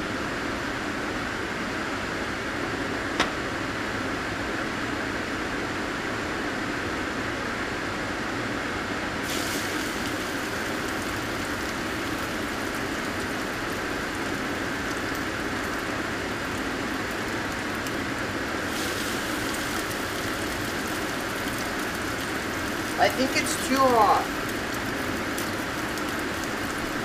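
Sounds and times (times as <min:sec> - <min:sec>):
steady background hum: 0:00.0 - 0:27.0
fish sizzling in hot oil: 0:09.2 - 0:27.0.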